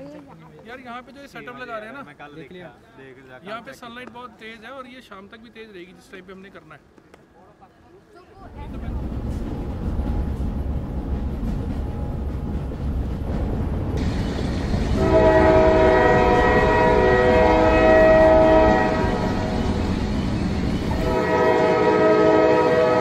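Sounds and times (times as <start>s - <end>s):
train horn chord: 14.9s - 19.9s, 20.9s - 23.0s.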